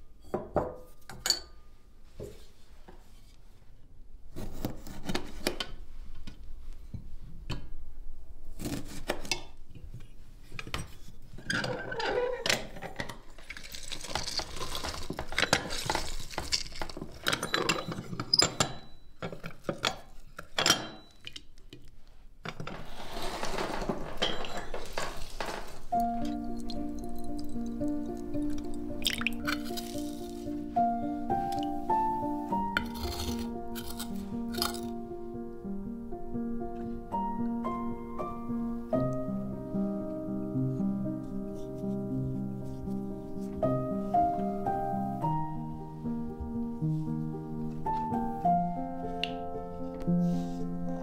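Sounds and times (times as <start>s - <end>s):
squeezing and scraping: 10.0s - 18.4s, 22.5s - 30.7s, 32.7s - 35.0s
metal lemon juicer clinking: 26.2s - 30.3s.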